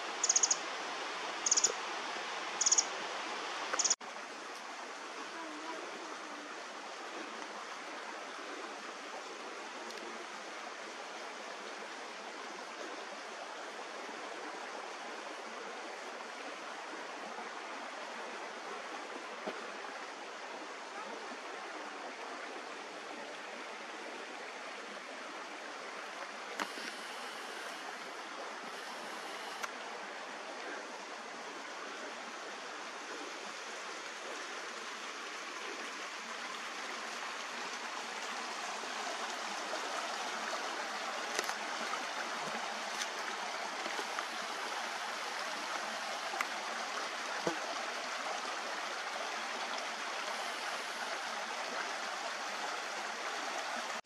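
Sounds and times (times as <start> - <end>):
creek rushing: 0.0 - 54.0
faint ticks: 3.7 - 4.7, 28.8 - 29.8.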